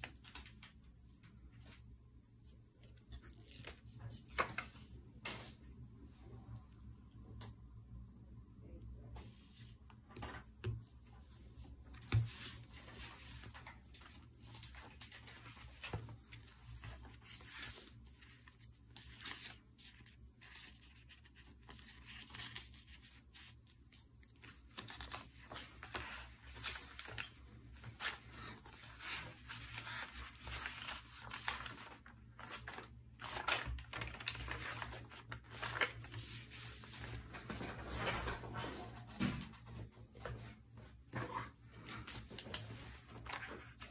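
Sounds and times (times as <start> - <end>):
paper rustling: 11.9 - 38.4, 41.1 - 43.9.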